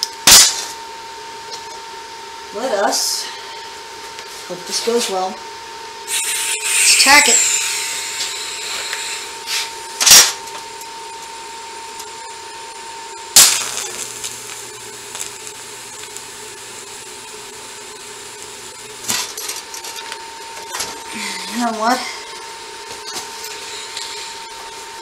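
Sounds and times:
welding arc striking crack: 0.0s - 0.8s, 10.0s - 10.6s, 13.3s - 21.0s
welding arc buzzing: 0.0s - 1.8s, 6.0s - 25.0s
welding arc crackles: 6.1s - 11.3s, 13.2s - 25.0s.

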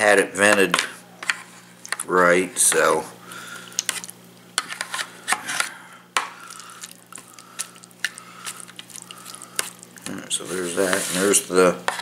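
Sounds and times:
fork scraping plastic tray: 4.6s - 5.7s, 10.4s - 12.0s.

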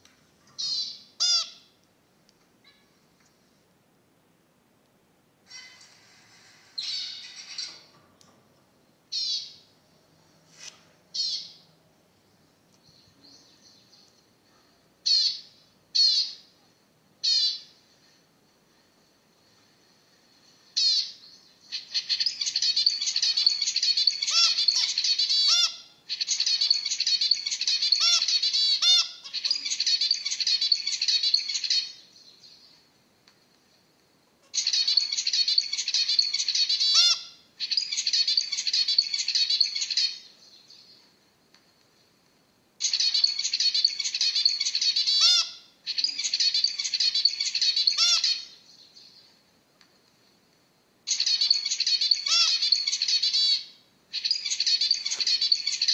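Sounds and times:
finch buzzy chattering song: 51.1s - 55.9s
finch single calls: 51.1s - 55.9s.

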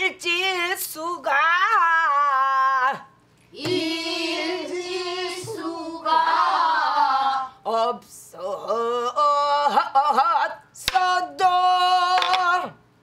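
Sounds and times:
woman singing: 0.0s - 3.8s.

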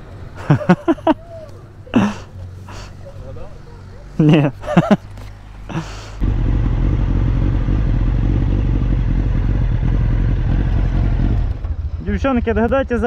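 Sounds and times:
motorcycle engine rumbling: 6.2s - 13.0s.

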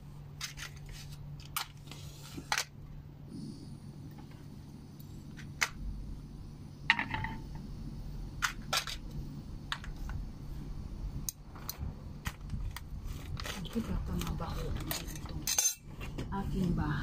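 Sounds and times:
low steady hum: 0.0s - 17.0s
kitchen utensils and dishes clicking: 14.7s - 15.9s.

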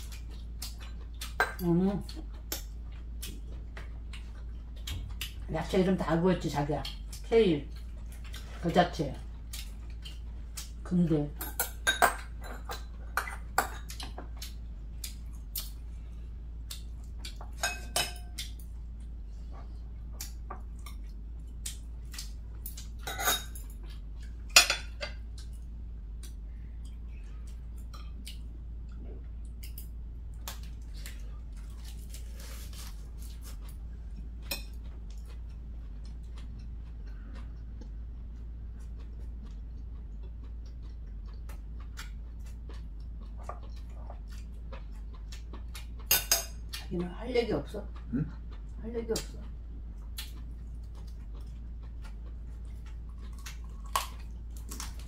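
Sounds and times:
faint low hum: 0.0s - 55.0s
chopsticks clinking on ceramic plates: 17.5s - 18.6s, 23.0s - 23.8s, 24.5s - 25.2s, 46.1s - 46.7s.

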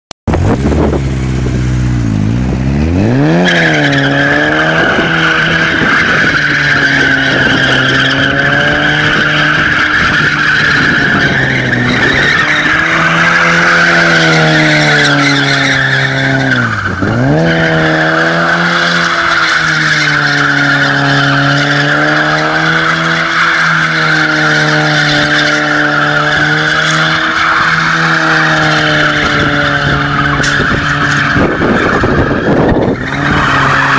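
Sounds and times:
car engine revving high: 0.3s - 33.9s
tyres squealing: 3.4s - 33.9s.

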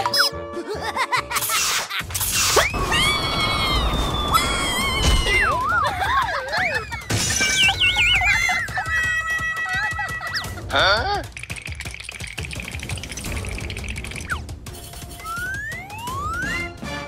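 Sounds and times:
cartoon crash: 1.5s - 6.1s, 7.0s - 8.2s
wobbling falling tones: 11.4s - 16.7s.

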